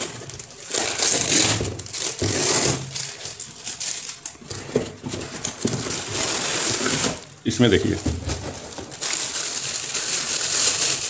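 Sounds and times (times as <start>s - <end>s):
plastic wrapping rustling: 0.0s - 11.0s
cardboard box scraping: 0.7s - 3.0s.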